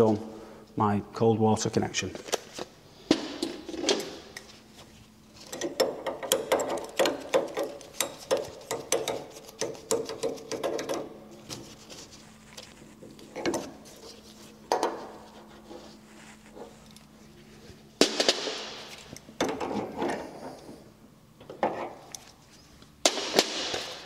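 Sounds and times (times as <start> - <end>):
metal clicks and rubs of threads: 5.4 - 15.8.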